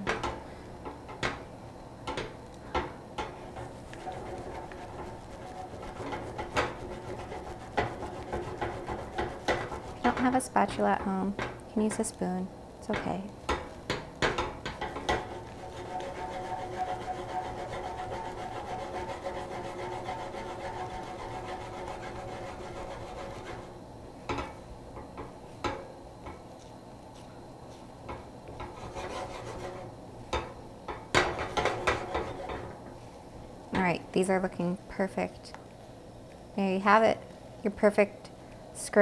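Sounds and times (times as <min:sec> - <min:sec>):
spatula knocking on pan: 0:02.1 - 0:11.6, 0:12.9 - 0:23.7, 0:30.3 - 0:32.7
spatula scraping eggs in pan: 0:03.2 - 0:11.1, 0:14.4 - 0:23.7, 0:28.6 - 0:29.9, 0:31.2 - 0:32.7.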